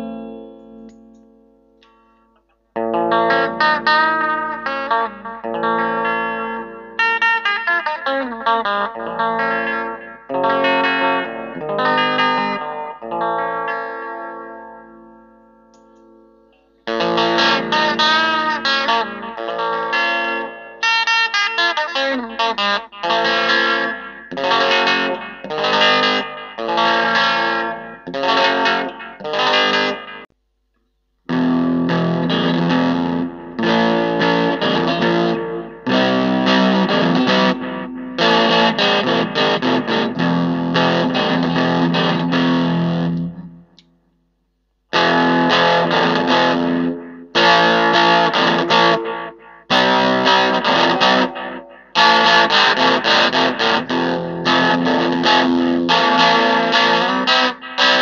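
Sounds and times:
distorted electric guitar: 0.0 - 30.3, 31.3 - 44.0, 44.9 - 58.0.

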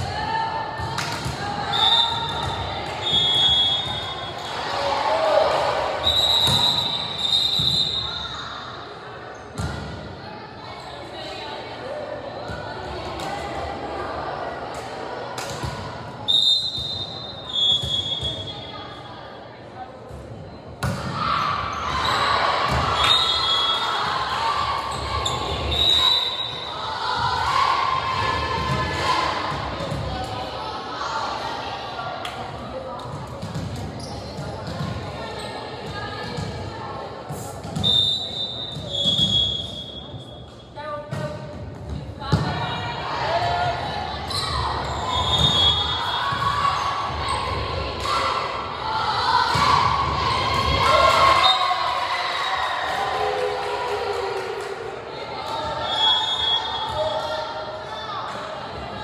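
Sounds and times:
crowd chatter: 0.0 - 59.0
sneakers squeaking on gym floor: 16.3 - 18.7, 33.5 - 36.4, 37.7 - 41.4, 44.3 - 47.5
crowd cheering: 44.6 - 57.5.

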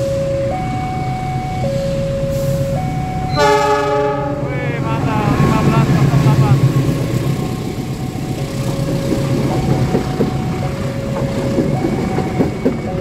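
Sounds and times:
two-note warning tone: 0.0 - 5.7
train carriages rumbling past: 1.8 - 13.0.

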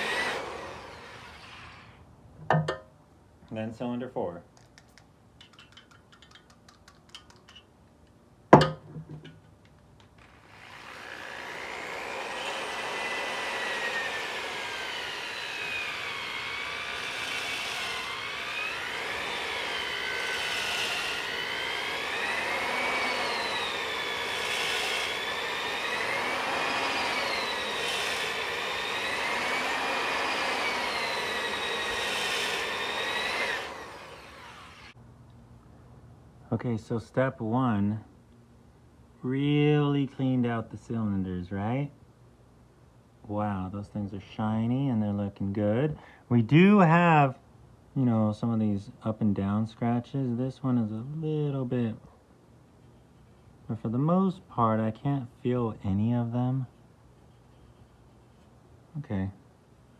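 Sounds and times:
electric drill whining: 0.0 - 2.0, 10.2 - 35.0.

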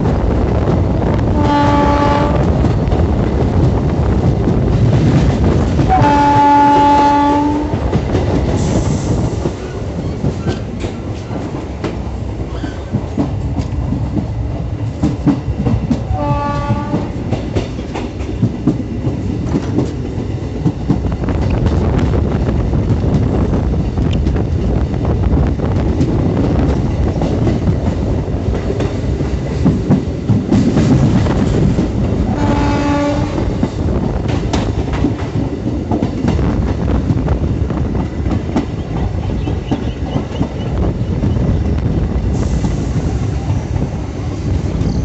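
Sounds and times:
train rumbling on rails: 0.0 - 45.0
locomotive horn blast: 1.3 - 2.5, 5.9 - 7.8, 16.1 - 17.2, 32.3 - 33.5.

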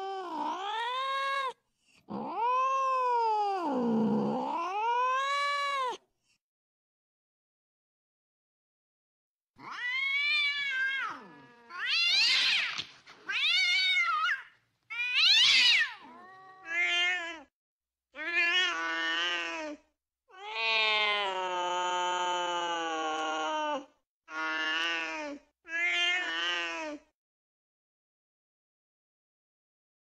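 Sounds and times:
cat yowling: 0.0 - 6.0, 9.6 - 17.5.

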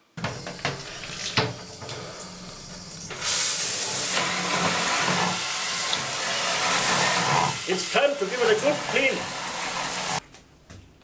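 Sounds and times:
shower spray hitting plastic: 0.2 - 1.7.

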